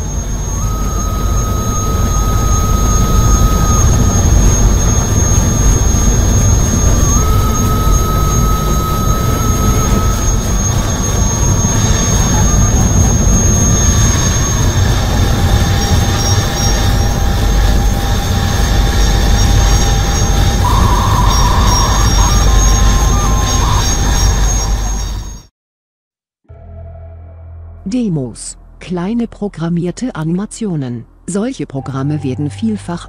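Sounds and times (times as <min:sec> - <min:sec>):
short buzzy tone: 0:00.0 - 0:13.2, 0:20.6 - 0:25.3
high electronic tones: 0:00.0 - 0:25.4
deep rumbling drone: 0:00.0 - 0:25.5, 0:26.5 - 0:33.0.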